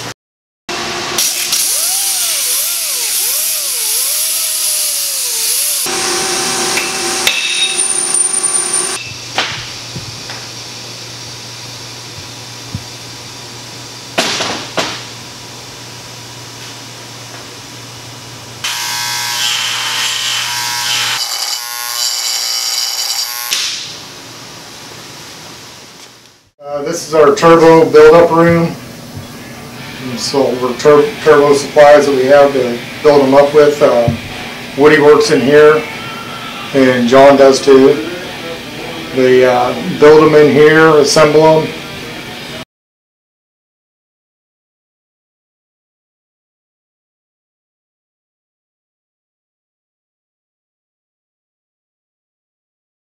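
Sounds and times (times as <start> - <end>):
power tool whine: 0.7 - 9.3, 18.6 - 23.9
loud hiss and machine noise: 0.7 - 42.6.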